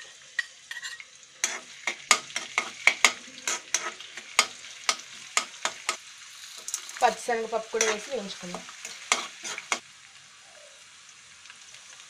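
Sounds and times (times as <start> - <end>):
ladle clinking and scraping pan: 0.0 - 6.0, 7.8 - 9.8
spices sizzling in hot oil: 0.0 - 12.0.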